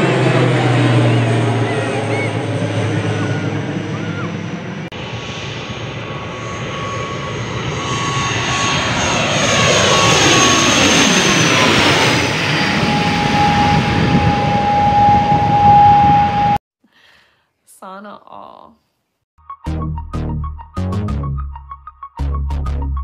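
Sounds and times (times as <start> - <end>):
turboprop airliner passing overhead: 0.0 - 16.6.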